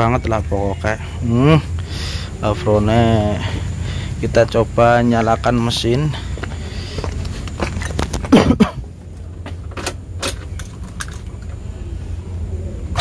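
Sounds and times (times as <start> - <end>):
steady low hum: 0.0 - 13.0
person climbing into car seat: 7.0 - 11.0.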